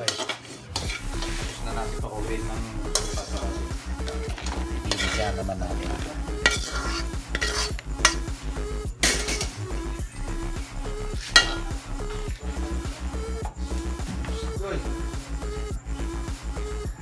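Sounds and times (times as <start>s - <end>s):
metal spoon scraping a pan: 0.0s - 1.7s, 2.9s - 8.3s, 9.0s - 9.6s, 11.2s - 12.3s.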